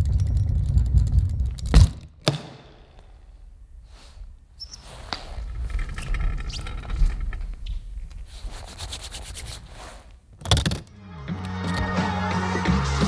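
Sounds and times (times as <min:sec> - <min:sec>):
wheeled case rolling on concrete: 0:00.0 - 0:02.1, 0:04.7 - 0:08.3
case thudding down: 0:01.6 - 0:02.9.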